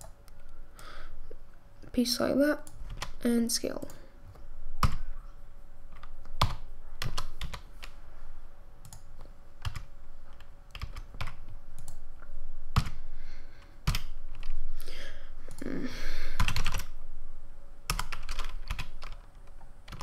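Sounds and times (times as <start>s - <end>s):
faint steady hum: 0.0s - 20.0s
keyboard keystrokes: 5.9s - 7.9s, 8.8s - 12.0s, 16.4s - 16.9s, 17.9s - 20.0s.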